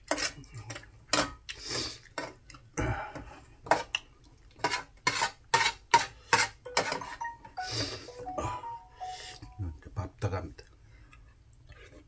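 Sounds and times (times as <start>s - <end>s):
utensils scraping a dish: 0.0s - 0.4s, 4.6s - 6.6s.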